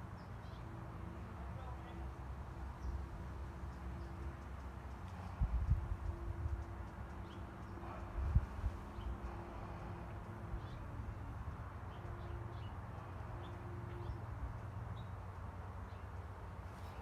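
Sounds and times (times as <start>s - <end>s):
wind rumble on microphone: 5.1s - 12.1s.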